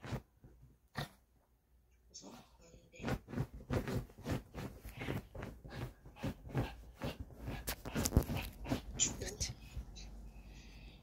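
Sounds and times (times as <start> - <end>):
dog scuffling on bedding: 0.0 - 0.8, 3.0 - 9.4.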